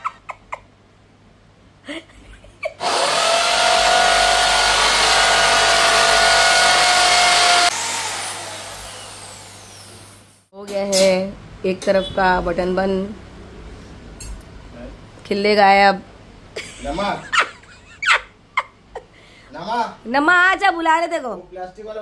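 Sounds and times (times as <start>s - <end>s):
electric drill whining: 2.8s - 10.5s.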